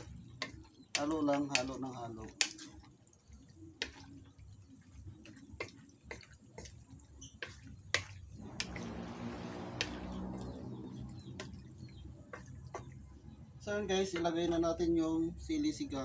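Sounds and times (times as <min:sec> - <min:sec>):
spatula scraping a metal wok: 0:07.4 - 0:11.8
steady rushing with low hum: 0:08.3 - 0:13.7.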